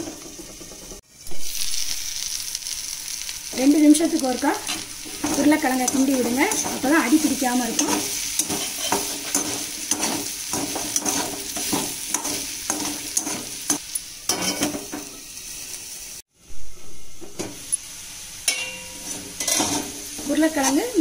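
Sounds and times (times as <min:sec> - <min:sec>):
potatoes sizzling in hot oil: 0:00.0 - 0:16.2, 0:17.4 - 0:21.0
metal spoon scraping a pan: 0:04.6 - 0:15.2, 0:18.4 - 0:21.0.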